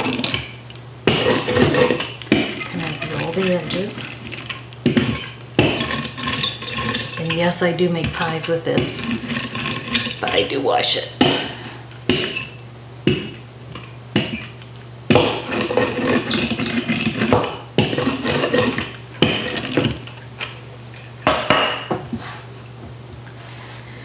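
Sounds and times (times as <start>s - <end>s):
rolling pin rolling over fabric: 1.1s - 10.4s, 15.1s - 20.0s.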